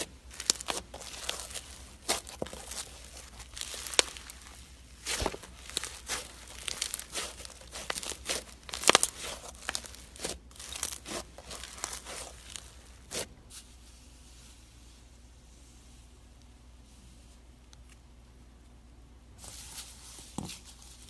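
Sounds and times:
slime crackling and popping: 0.0 - 13.3.

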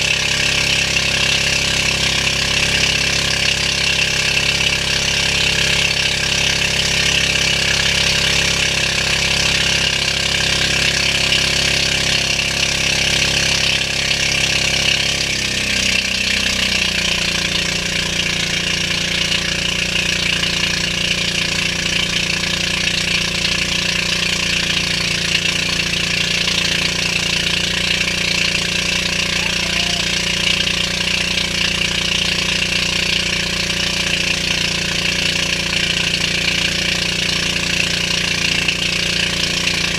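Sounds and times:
boat engine running: 0.0 - 39.9.

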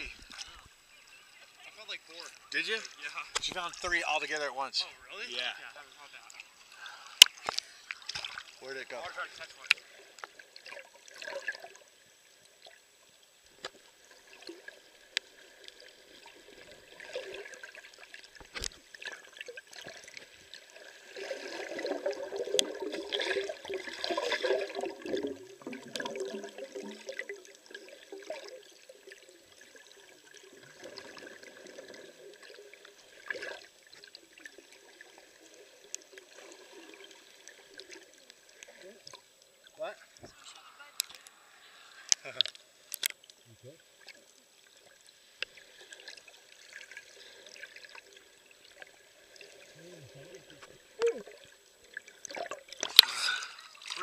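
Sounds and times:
muffled underwater water wash: 5.8 - 40.3
churning bubbling water: 15.6 - 38.1.

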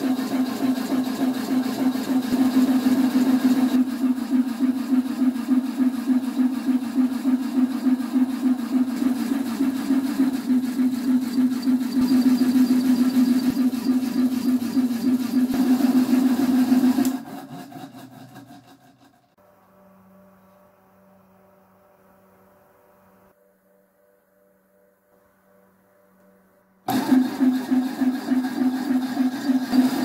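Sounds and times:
air compressor pulsing hum: 0.0 - 20.9, 26.9 - 30.0.

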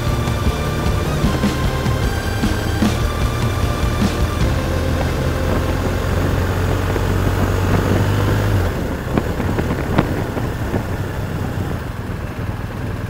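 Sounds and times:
wind noise: 0.0 - 12.9
motorcycle engine: 0.0 - 13.0.

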